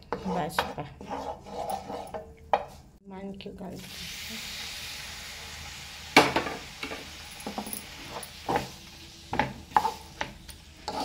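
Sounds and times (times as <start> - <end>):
wooden spatula scraping pan: 0.0 - 2.9, 7.5 - 11.0
squid sizzling in frying pan: 3.8 - 11.0.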